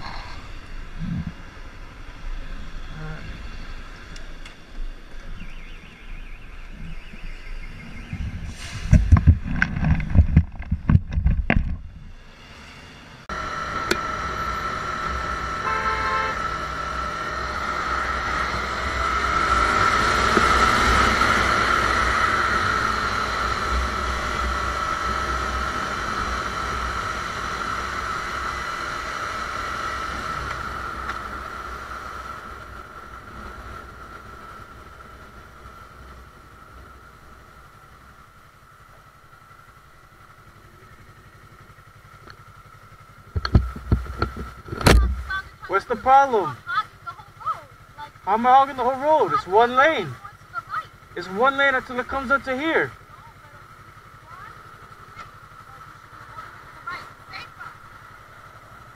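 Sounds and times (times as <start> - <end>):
motorcycle engine: 0.0 - 58.9
wind noise on microphone: 7.7 - 12.2.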